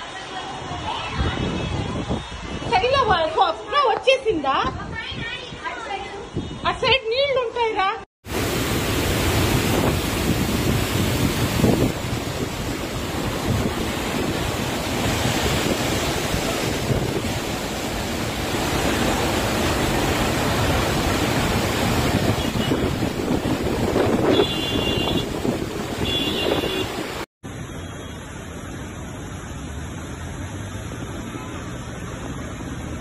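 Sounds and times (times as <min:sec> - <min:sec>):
wind buffeting microphone: 0:01.0 - 0:03.3, 0:09.1 - 0:19.2, 0:19.8 - 0:27.0
flood torrent roaring: 0:08.2 - 0:27.3, 0:28.2 - 0:33.0.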